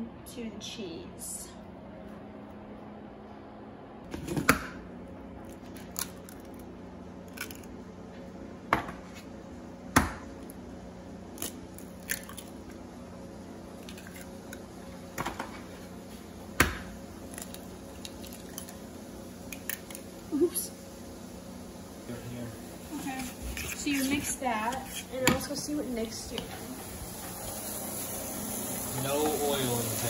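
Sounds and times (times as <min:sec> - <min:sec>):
steady low hum: 0:00.0 - 0:30.0
eggs cracking into a bowl: 0:05.5 - 0:07.8, 0:11.3 - 0:12.7, 0:13.8 - 0:15.4, 0:16.6 - 0:18.8, 0:19.5 - 0:20.1.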